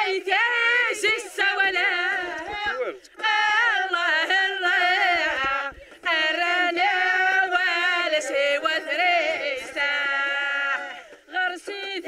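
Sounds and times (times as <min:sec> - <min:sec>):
women singing together: 0:00.0 - 0:12.0.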